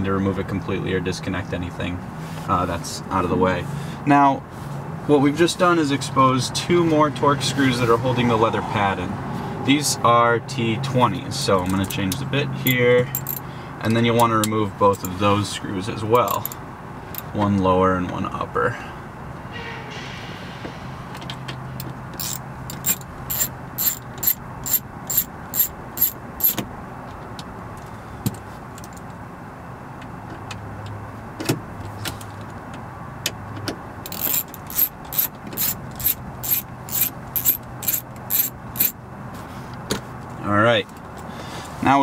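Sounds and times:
ratcheting screwdriver clicking: 13.2 - 13.4, 22.2 - 26.6, 34.1 - 38.9.

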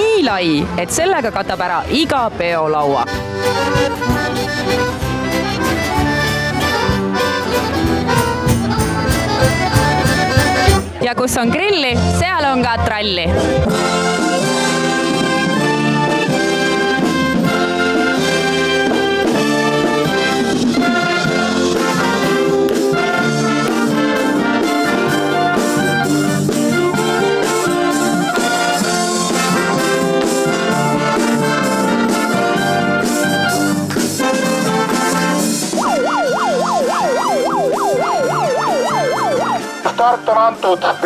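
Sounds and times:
military wind band playing: 3.1 - 11.0, 13.1 - 41.0
tuba: 3.1 - 11.0, 12.9 - 41.0
clarinets and flutes: 35.6 - 39.9.

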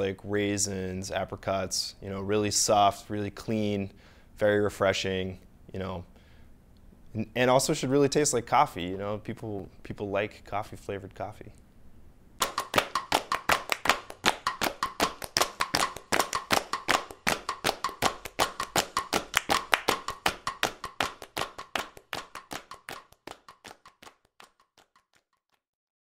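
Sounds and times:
sharp rapid clicks: 12.4 - 25.0.

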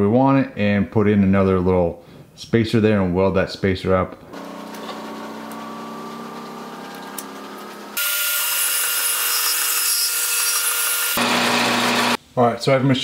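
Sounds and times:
motor hum: 4.4 - 8.2
band saw cutting steel: 4.4 - 12.2
lathe turning metal rod: 4.4 - 12.2.

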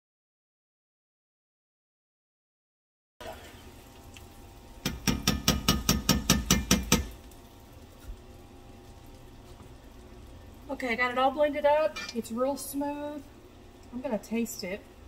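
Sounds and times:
blender shaft tapping pot rim: 4.9 - 7.2.

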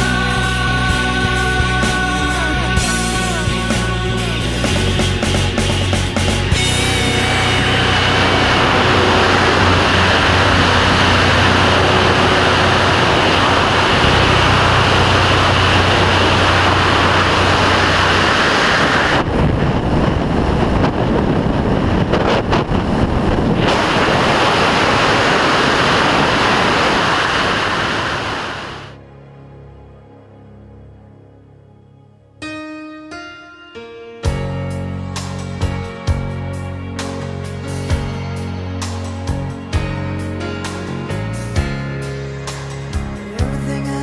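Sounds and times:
wind rushing over microphone: 5.7 - 29.0.

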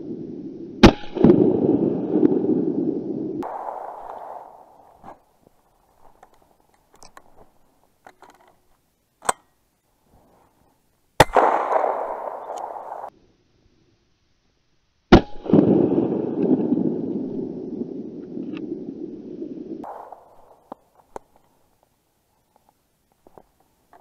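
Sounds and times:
shotgun shots: 3.4 - 5.1, 11.2 - 13.1, 19.8 - 20.6
footsteps crunching in snow: 3.9 - 8.0.

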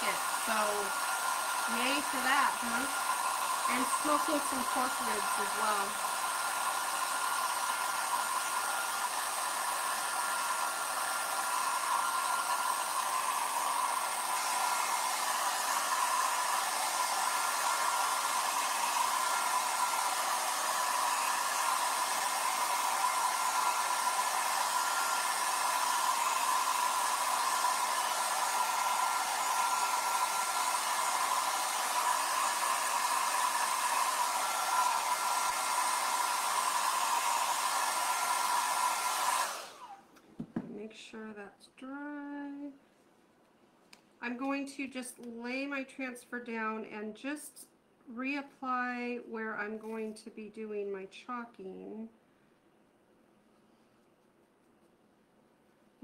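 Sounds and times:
hair dryer blowing: 0.0 - 41.4.

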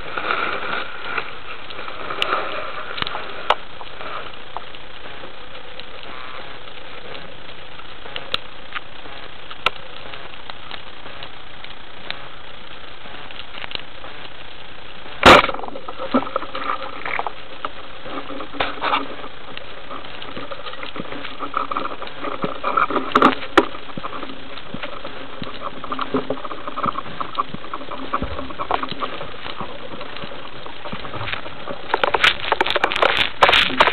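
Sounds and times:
scattered clicks and knocks: 15.2 - 33.9.

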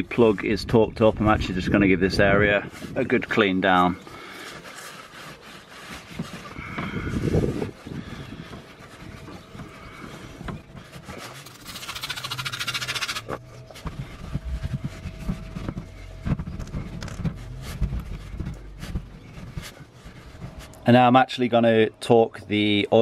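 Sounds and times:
cloth wiping plastic: 2.7 - 21.0.

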